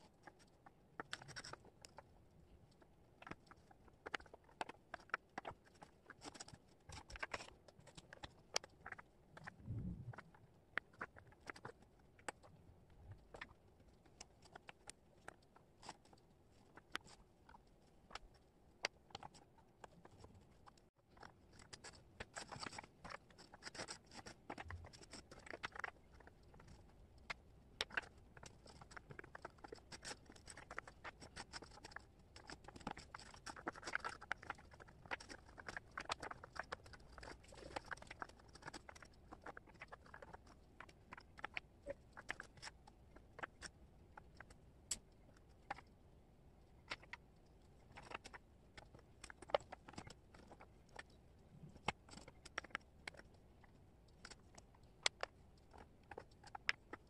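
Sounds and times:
wooden puzzle pieces clicking: 19.1s - 45.9s, 47.9s - 51.1s, 51.8s - 53.3s, 54.2s - 57.0s.

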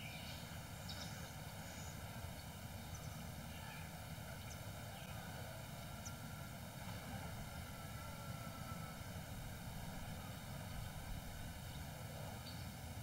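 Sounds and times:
faint background hiss: 0.0s - 13.0s.

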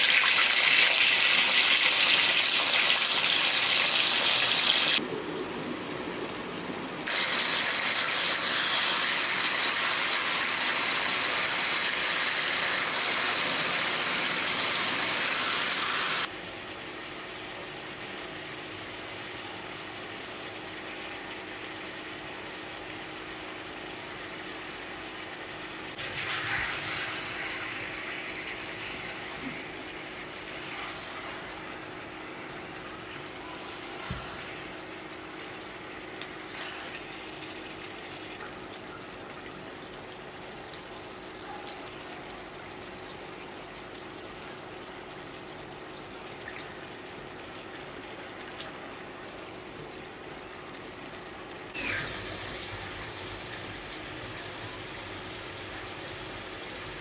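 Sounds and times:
chicken sizzling in hot oil: 0.0s - 5.0s, 7.0s - 16.3s, 20.8s - 38.4s, 51.2s - 57.0s.

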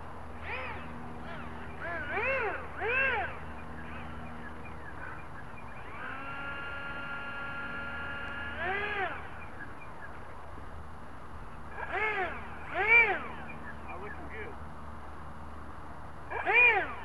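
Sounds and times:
steady low hum: 0.0s - 17.0s
steady whine: 0.0s - 17.0s
animal honking call: 0.4s - 10.1s, 11.7s - 14.5s, 16.3s - 17.0s.

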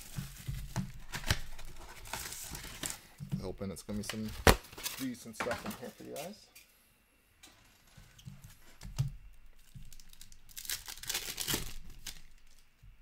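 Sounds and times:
wrapper tearing and crinkling: 0.0s - 3.0s, 9.6s - 12.7s.

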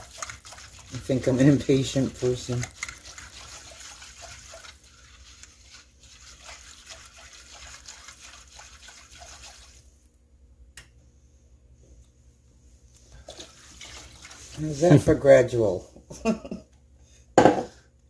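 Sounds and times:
whisk swishing and scraping in saucepan: 0.0s - 10.1s, 13.2s - 15.8s.

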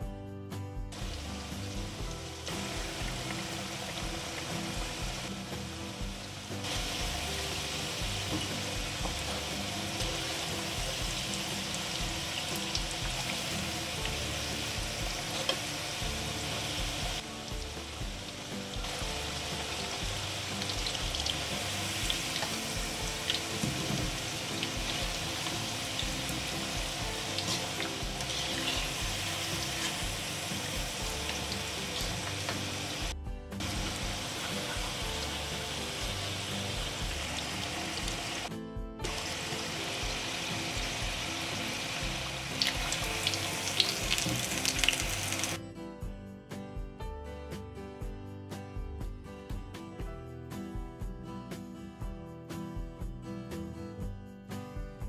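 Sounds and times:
background music: 0.0s - 55.0s
oil sizzling: 0.9s - 45.6s.

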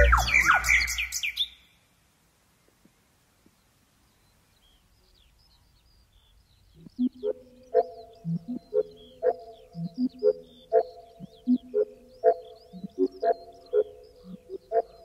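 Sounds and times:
ambient music: 0.0s - 0.8s, 7.0s - 15.0s
songbird chirps: 0.0s - 15.0s.

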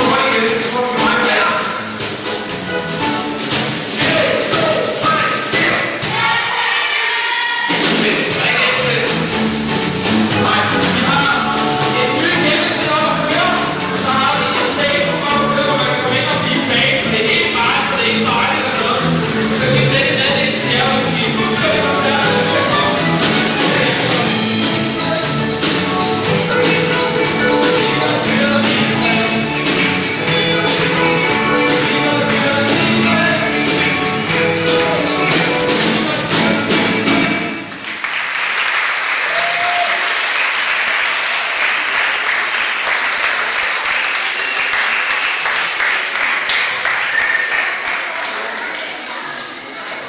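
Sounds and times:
live band playing: 0.0s - 38.1s
audience applauding: 21.0s - 28.8s, 36.2s - 49.5s.

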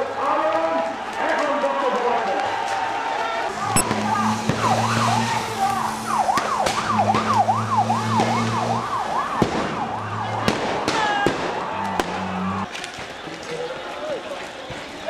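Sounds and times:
police siren yelping: 3.5s - 12.7s
sharp bangs: 3.6s - 12.7s.

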